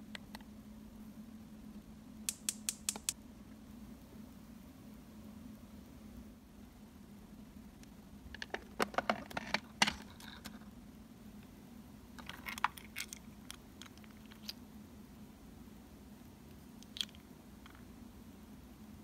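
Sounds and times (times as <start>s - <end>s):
small plastic clicks and taps: 2.3s - 3.2s.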